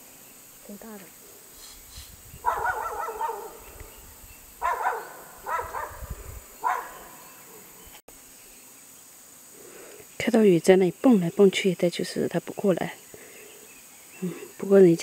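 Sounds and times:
dog barking: 2.4 - 3.7, 4.6 - 7.2.

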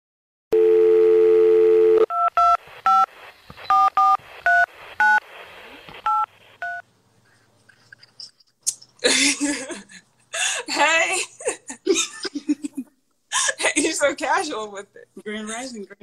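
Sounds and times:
telephone dial tone: 0.6 - 2.5.

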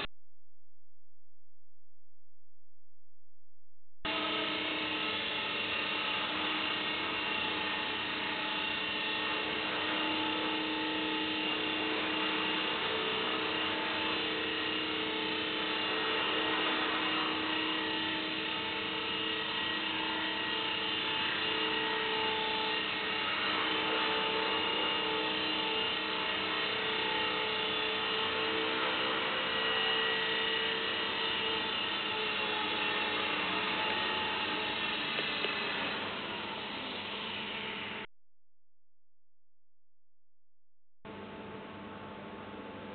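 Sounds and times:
toy helicopter buzzing whine: 4.1 - 38.1.

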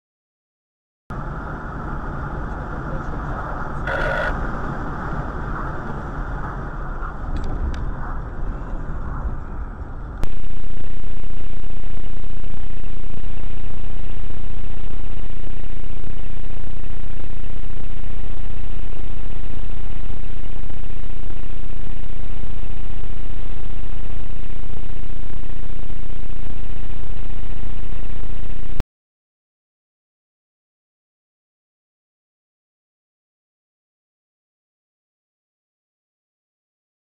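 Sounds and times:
car engine and road noise: 1.1 - 10.3.

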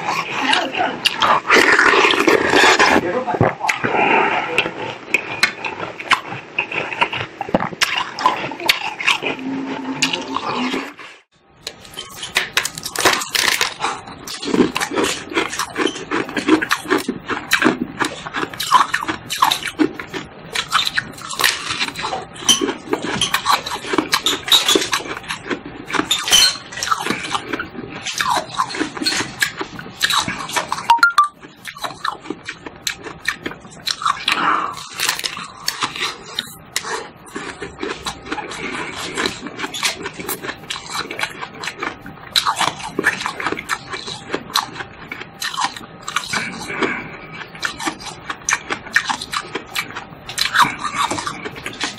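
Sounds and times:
ice crunching and chewing: 0.0 - 51.9.

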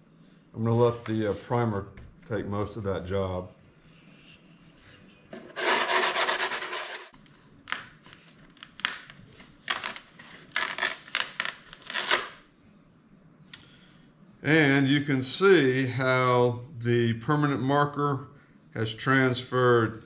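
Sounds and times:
fiberglass patch scraping and crackling: 4.0 - 12.4
sanding block rasping: 5.4 - 7.1.

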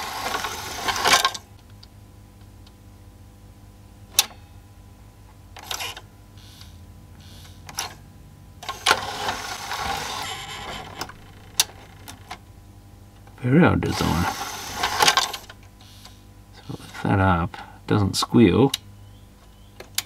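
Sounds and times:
loading motor whirring: 0.0 - 1.4, 8.6 - 12.4, 13.8 - 16.2.

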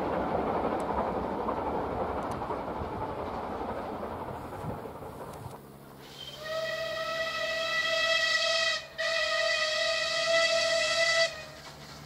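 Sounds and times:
steam locomotive whistle blasts: 6.0 - 11.7.

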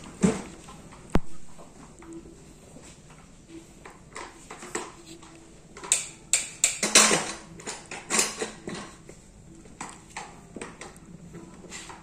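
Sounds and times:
plastic toys clattering: 5.8 - 9.0.

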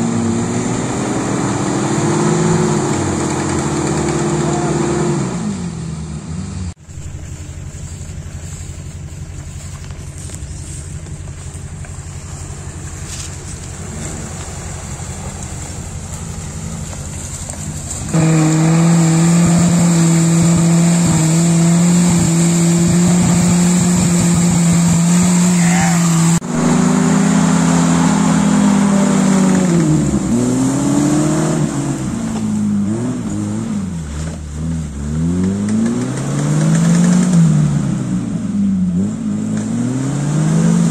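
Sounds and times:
off-road engine revving: 0.0 - 40.9
wheels spinning in mud: 6.8 - 37.6.

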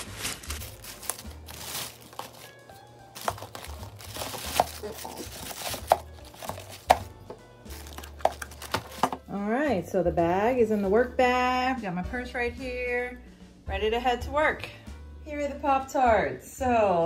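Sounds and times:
plastic bag rustling: 0.0 - 7.1, 7.7 - 9.2.

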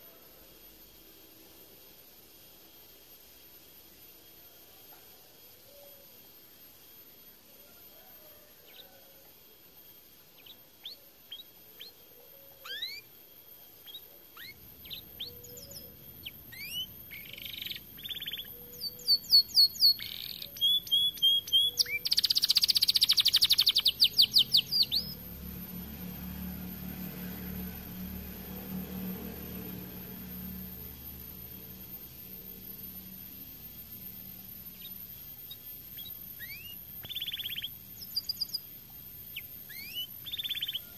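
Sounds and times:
low steady hum: 0.0 - 40.9
canary singing: 10.3 - 40.9.

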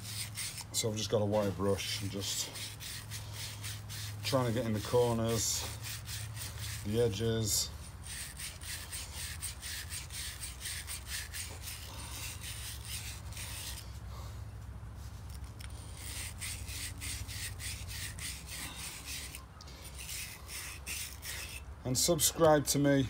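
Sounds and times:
wire brush scrubbing metal: 0.0 - 14.0, 15.3 - 22.2.

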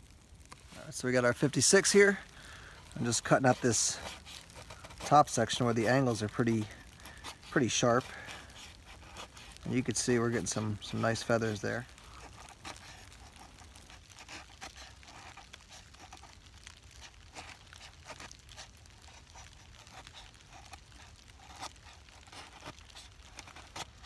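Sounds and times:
knife scraping wood: 2.8 - 24.0.

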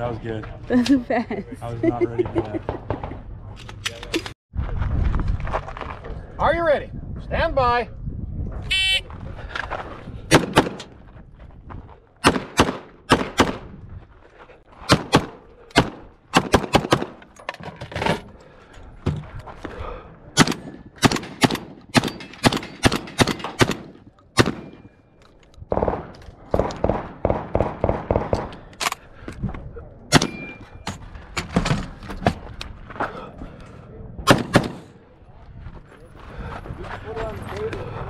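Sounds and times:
gunfire: 10.3 - 10.9, 12.2 - 13.7, 14.9 - 17.2, 20.4 - 24.9, 25.7 - 28.5, 30.1 - 30.6, 34.2 - 35.0.

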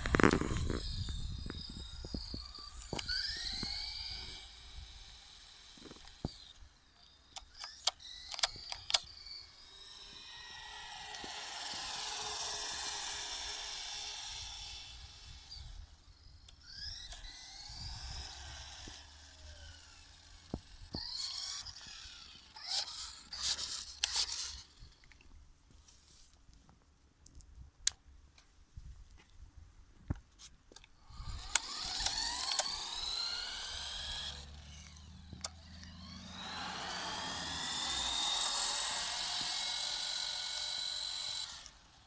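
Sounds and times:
sharp clicks: 0.0 - 4.5, 5.5 - 9.4, 16.4 - 19.0, 20.4 - 25.3, 30.7 - 41.8
toy car electric motor whining: 0.0 - 25.1, 31.0 - 42.0.

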